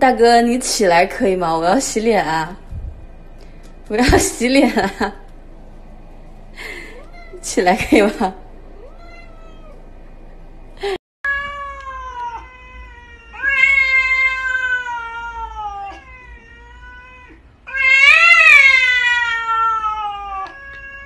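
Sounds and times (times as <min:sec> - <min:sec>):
cat yowling: 0:08.8 - 0:09.8, 0:11.3 - 0:21.0.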